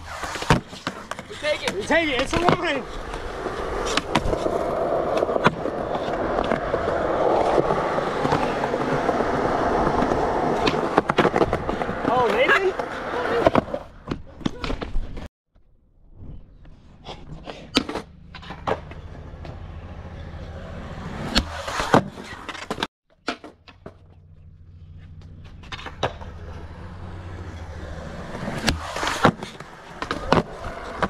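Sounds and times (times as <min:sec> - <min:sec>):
skateboard wheels rolling on concrete: 0:00.0 - 0:15.3, 0:16.1 - 0:31.0
skateboard clacks: 0:00.4 - 0:15.3, 0:25.1 - 0:31.0.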